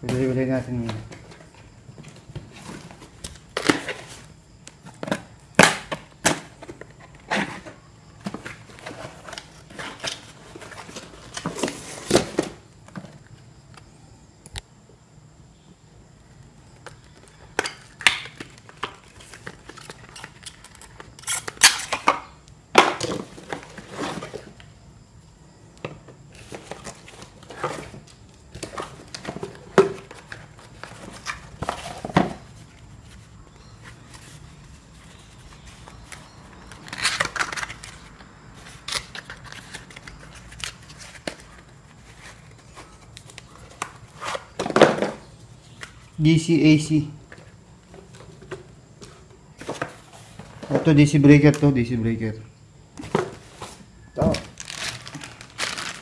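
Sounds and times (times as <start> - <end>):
packaging rustling and crinkling: 26.4 - 45.8, 53.0 - 56.0.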